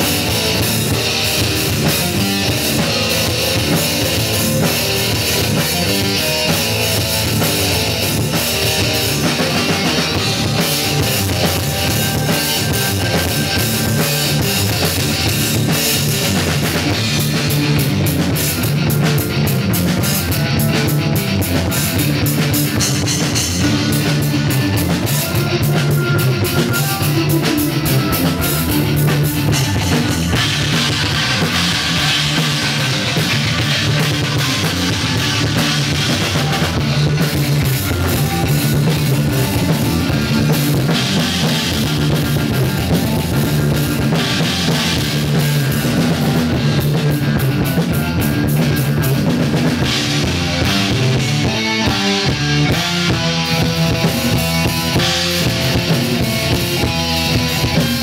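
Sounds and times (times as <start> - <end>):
drum kit and cymbals: 0.0 - 58.0
electric guitar: 0.0 - 58.0
progressive rock band playing: 0.0 - 58.0.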